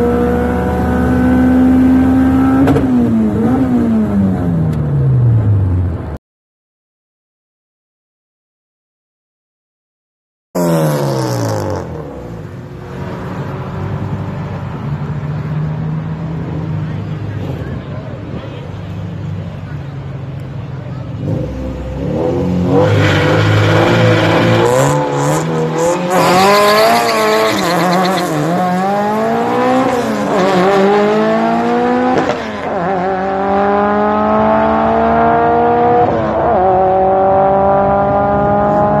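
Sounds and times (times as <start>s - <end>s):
car engine revving through upshifts: 0.0s - 4.7s, 10.6s - 14.2s, 21.2s - 39.0s.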